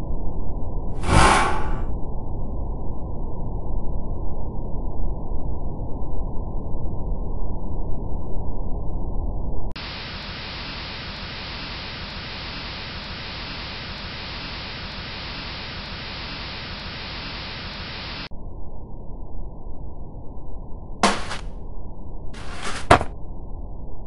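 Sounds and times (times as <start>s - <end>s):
hiss of air in a duct: 1.0s - 1.9s, 9.8s - 18.3s.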